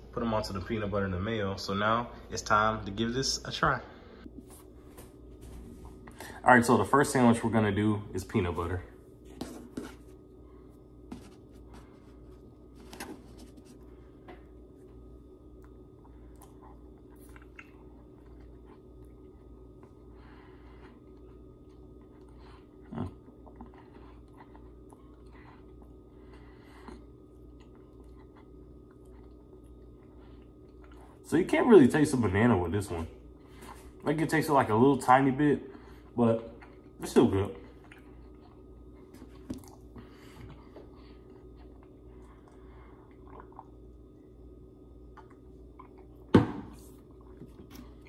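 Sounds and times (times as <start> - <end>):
person chewing: 11.1 - 31.2, 35.7 - 37.0, 37.6 - 44.1, 45.0 - 48.0
sipping and swallowing: 37.7 - 44.1.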